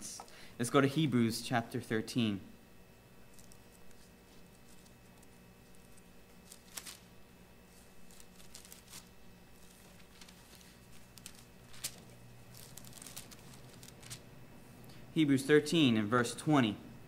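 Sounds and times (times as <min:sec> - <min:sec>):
low room hum: 0:00.0 - 0:17.0
thin pages rustling: 0:03.3 - 0:14.3.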